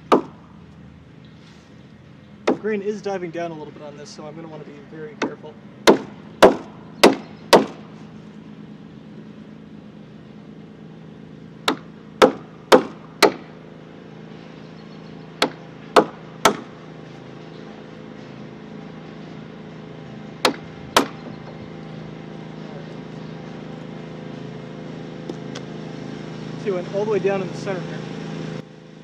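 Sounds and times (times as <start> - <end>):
mallet striking chisel into wood: 0.1 - 0.4, 5.2 - 7.8.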